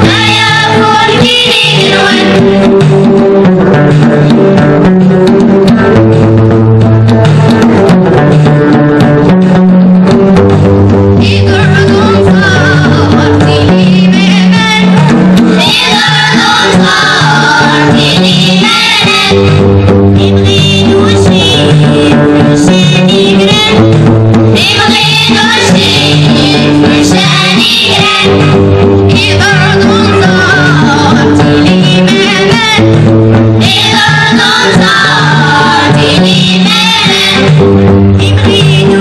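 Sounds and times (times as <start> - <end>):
children's choir singing: 0.0 - 2.6, 11.3 - 19.6, 20.2 - 23.8, 24.6 - 32.9, 33.6 - 37.6, 38.2 - 39.0
drum: 0.0 - 39.0
plucked strings: 0.0 - 39.0.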